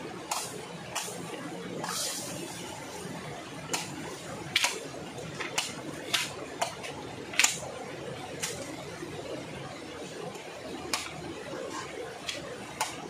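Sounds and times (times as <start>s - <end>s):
machete chopping bamboo: 4.5s - 4.8s, 5.4s - 7.6s.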